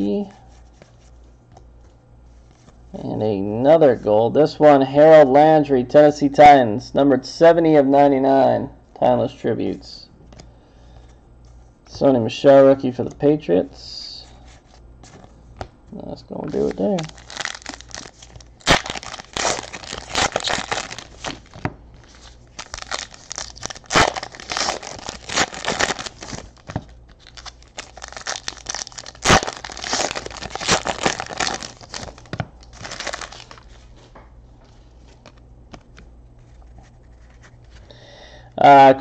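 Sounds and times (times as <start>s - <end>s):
foil wrappers crinkling and tearing: 16.5s - 33.9s.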